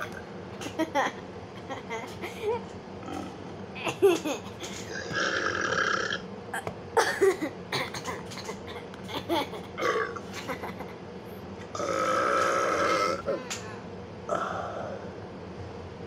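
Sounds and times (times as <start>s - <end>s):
person burping loudly: 3.0s - 3.6s, 4.9s - 6.2s, 9.8s - 10.3s, 11.7s - 13.5s, 14.3s - 14.8s.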